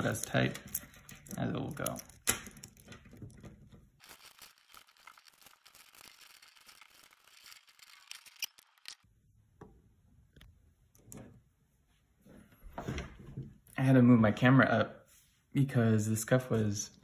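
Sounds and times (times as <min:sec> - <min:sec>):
plastic beads clicking and rustling: 0:00.0 - 0:09.1.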